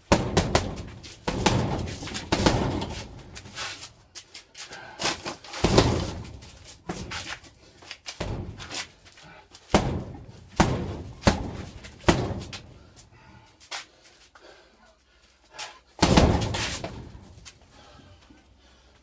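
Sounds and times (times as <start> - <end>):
punches thudding on heavy bag: 0.0 - 3.8, 5.0 - 8.9, 9.7 - 12.9, 16.0 - 17.4.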